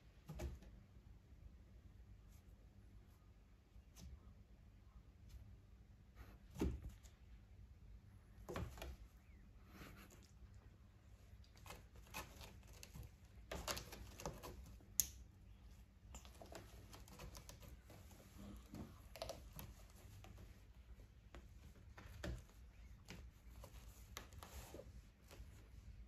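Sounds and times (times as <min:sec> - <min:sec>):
cat claws scratching sisal post: 0:11.4 - 0:15.2.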